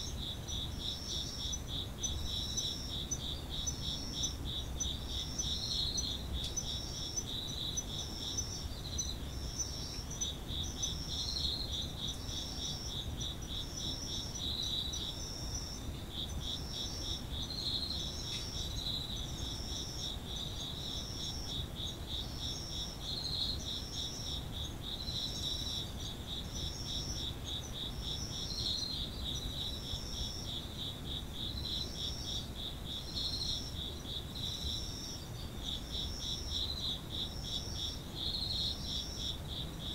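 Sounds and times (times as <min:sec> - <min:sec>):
insect fast-pulsed trill: 0:00.0 - 0:30.6
insect high-pitched chirping phrase: 0:00.0 - 0:30.6.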